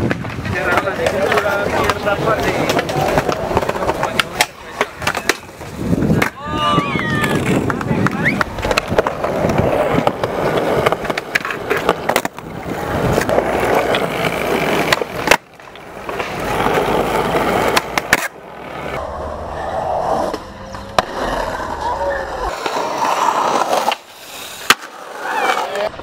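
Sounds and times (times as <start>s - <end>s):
skateboard clacks: 0.0s - 19.0s
skateboard wheels rolling on concrete: 0.0s - 26.0s.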